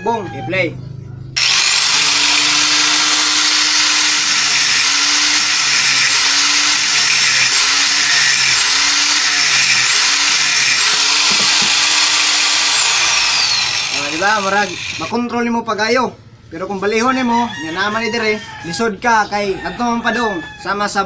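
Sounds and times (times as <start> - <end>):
angle grinder grinding metal pipe: 1.4 - 15.2.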